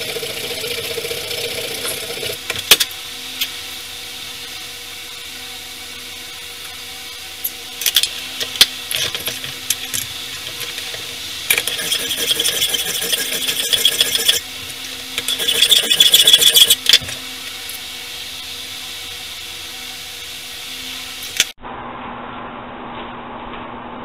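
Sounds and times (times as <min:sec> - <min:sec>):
steady low hum: 0:00.0 - 0:24.0
rasping scrape of metal: 0:11.5 - 0:14.4, 0:15.2 - 0:16.8.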